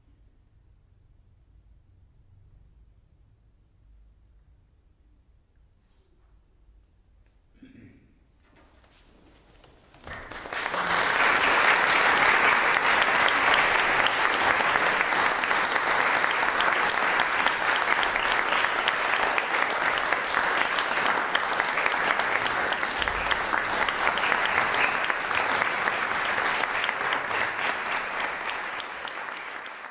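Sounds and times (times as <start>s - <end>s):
audience applauding: 9.9s - 29.9s.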